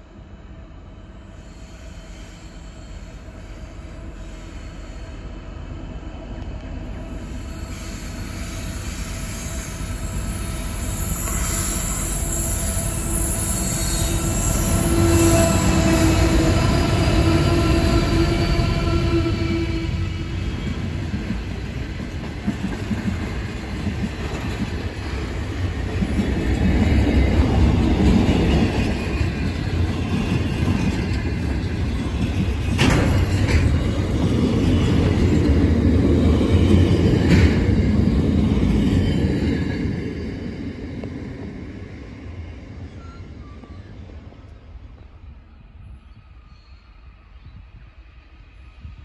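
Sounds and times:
steel wheels rumbling on rail: 0.0s - 49.0s
high wheel squeal: 7.2s - 20.3s.

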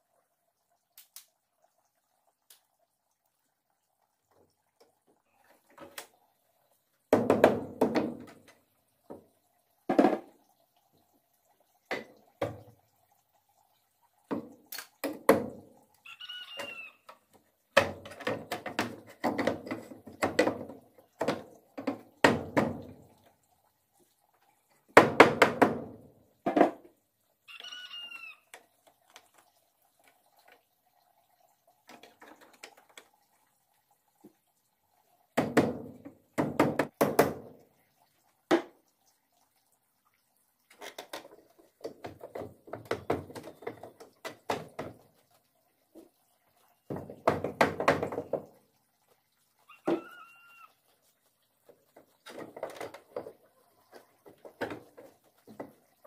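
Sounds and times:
rooster crowing: 16.0s - 17.0s, 27.5s - 28.4s, 49.7s - 50.7s.

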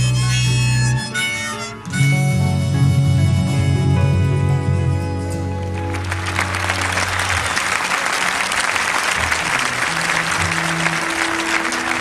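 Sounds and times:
faint instrument notes: 0.0s - 7.4s
band chord: 1.6s - 7.3s
audience applauding: 5.6s - 12.0s.

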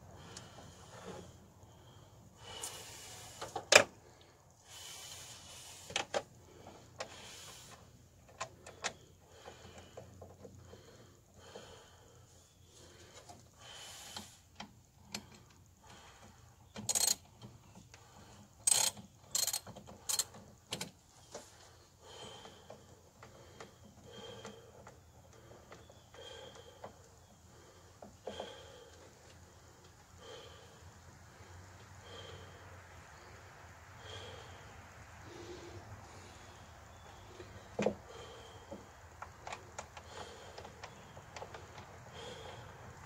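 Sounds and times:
socket ratchet clicking: 16.8s - 17.2s, 18.6s - 20.9s.

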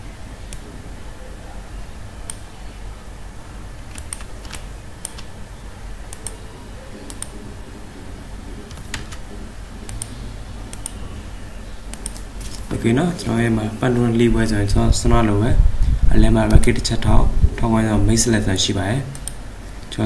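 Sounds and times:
low steady hum: 0.0s - 20.0s
computer mouse clicking: 3.9s - 5.3s, 6.1s - 6.4s, 7.1s - 7.4s, 8.7s - 9.2s, 9.9s - 11.0s, 11.9s - 12.7s, 19.1s - 19.4s.

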